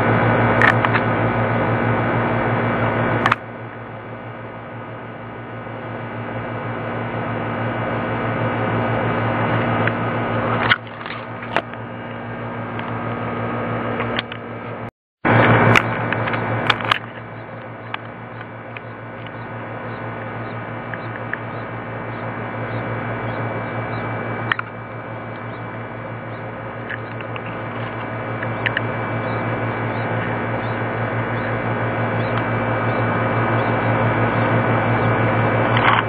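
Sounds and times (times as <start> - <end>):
nestling birds cheeping: 15.7 - 35.9.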